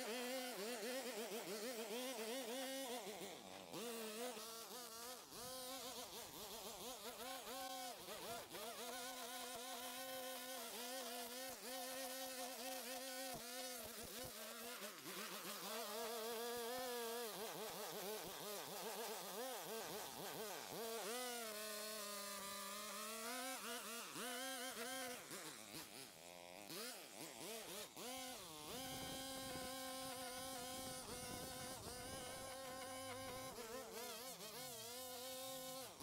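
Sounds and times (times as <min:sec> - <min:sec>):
power tool motor buzzing: 0:00.0 - 0:36.0.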